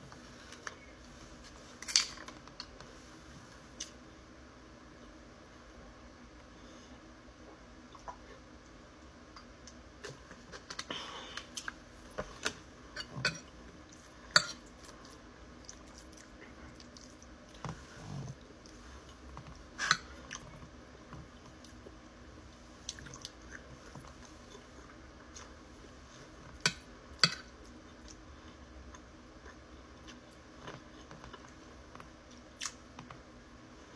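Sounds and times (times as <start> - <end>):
person chewing food: 9.6 - 22.0, 22.8 - 33.2.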